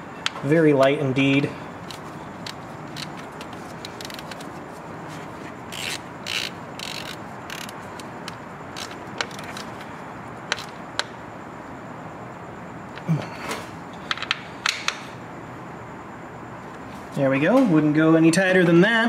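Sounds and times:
hand ratchet clicking: 1.8 - 4.4, 5.7 - 9.7.

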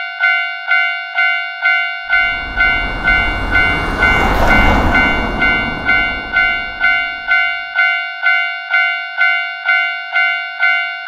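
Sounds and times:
level crossing warning bell: 0.1 - 11.0
passing vehicle rumble: 2.1 - 7.8.

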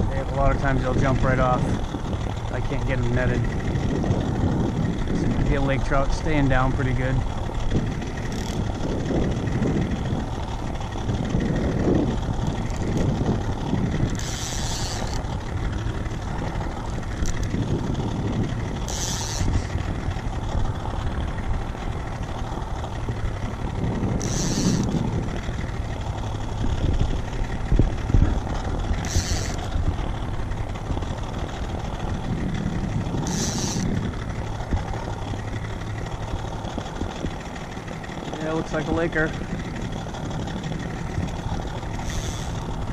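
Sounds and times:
choppy water: 0.0 - 42.9
gusty wind: 0.0 - 42.9
outboard motor running: 0.0 - 42.9
fishing reel clicker buzzing: 7.5 - 9.4, 12.4 - 20.3, 24.1 - 25.8, 28.8 - 30.0, 33.1 - 37.4, 41.2 - 42.8.

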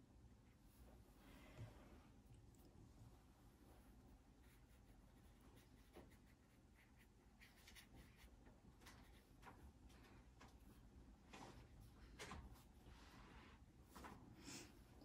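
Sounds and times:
watercolor brush strokes on paper: 3.4 - 9.5.

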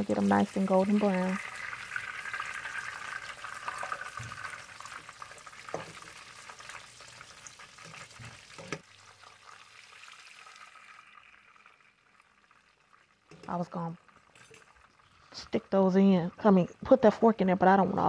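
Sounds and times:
chicken sizzling in oil: 0.0 - 17.2.

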